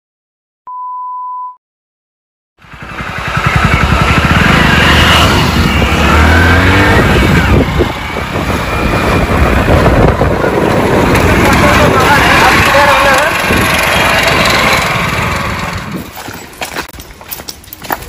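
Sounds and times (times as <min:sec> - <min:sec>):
motorcycle engine running: 0:02.6 - 0:16.5.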